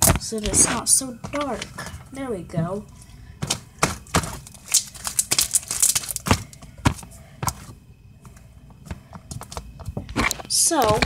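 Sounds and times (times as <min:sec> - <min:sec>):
hands knocking and clicking objects: 0:03.4 - 0:11.0.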